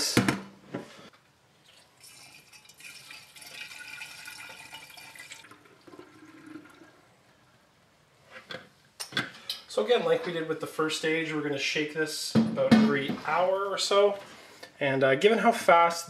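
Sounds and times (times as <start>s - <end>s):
liquid pouring into glass jug: 1.6s - 7.3s.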